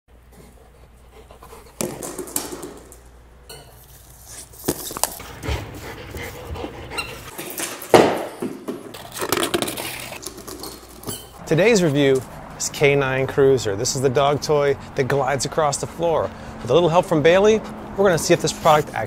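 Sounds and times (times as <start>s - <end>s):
dog panting: 0.3s - 2.1s, 5.2s - 7.4s, 14.2s - 19.0s.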